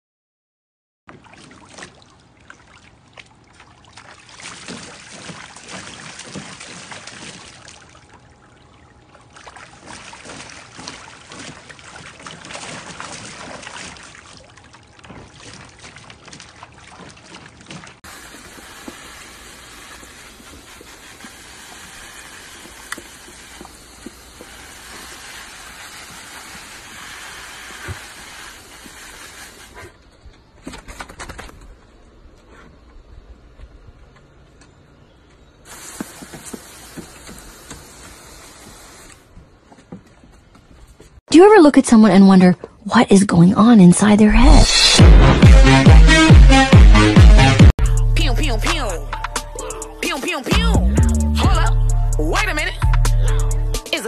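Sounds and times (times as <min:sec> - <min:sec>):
dog lapping at water: 0:01.1 - 0:30.0
hose water splashing into pool: 0:01.1 - 0:30.1, 0:35.6 - 0:39.3
hose nozzle spraying wood: 0:18.1 - 0:29.9, 0:35.7 - 0:39.2.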